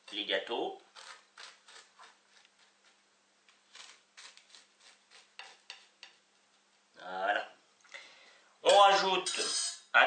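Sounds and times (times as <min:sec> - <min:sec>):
faint steady hum: 0:00.0 - 0:10.0
metal spoon scraping on plate: 0:09.2 - 0:09.9.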